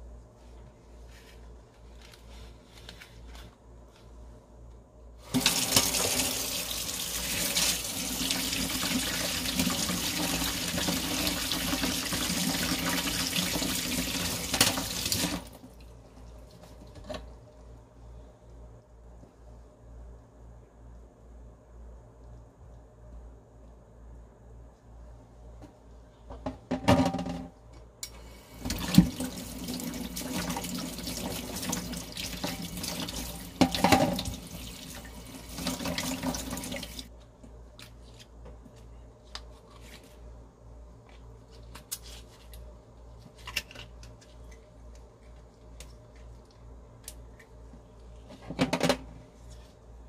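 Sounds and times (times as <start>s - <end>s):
tap water running into sink: 5.3s - 15.6s, 28.6s - 37.1s.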